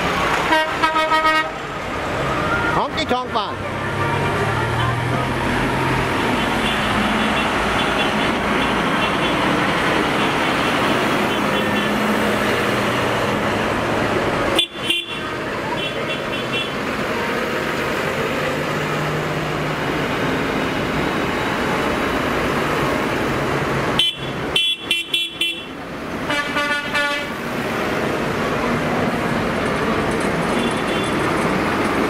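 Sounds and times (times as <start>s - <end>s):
diesel engines running: 0.0s - 32.0s
vehicle horns tooting: 0.4s - 1.5s, 6.3s - 9.6s, 11.2s - 12.0s, 14.5s - 16.8s, 24.0s - 27.4s, 30.5s - 31.3s.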